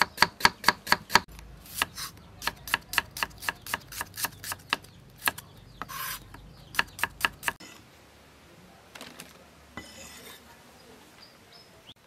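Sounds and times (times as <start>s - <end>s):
knife chopping on wooden board: 0.0s - 7.6s
knife scraping board: 3.9s - 6.3s, 9.8s - 10.5s.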